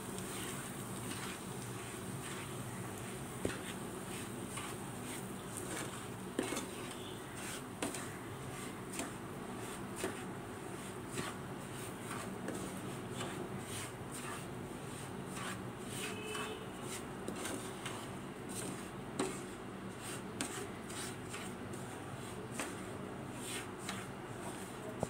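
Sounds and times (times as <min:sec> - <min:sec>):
spatula scraping a pan: 0:00.0 - 0:25.0.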